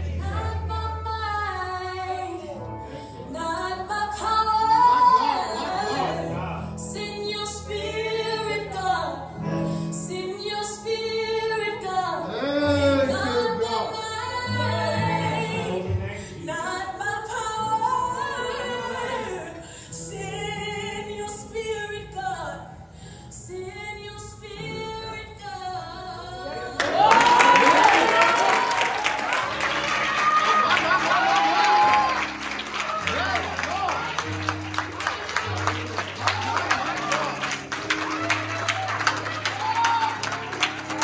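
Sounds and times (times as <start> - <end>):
woman singing: 0.0 - 28.2.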